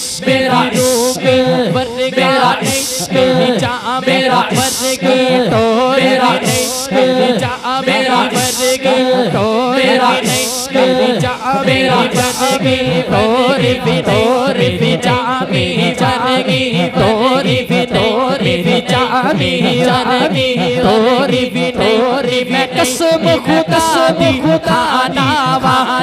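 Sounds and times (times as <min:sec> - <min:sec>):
man singing into a microphone: 0:00.0 - 0:26.0.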